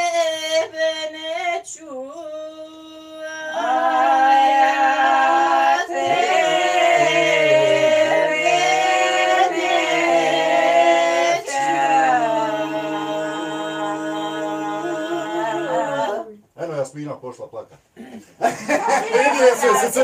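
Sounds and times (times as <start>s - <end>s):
group singing unaccompanied: 2.4s - 16.4s.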